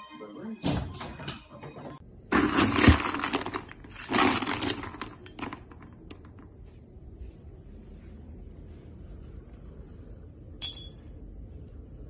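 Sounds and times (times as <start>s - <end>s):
dry kibble rattling in metal scoop: 2.3s - 5.6s.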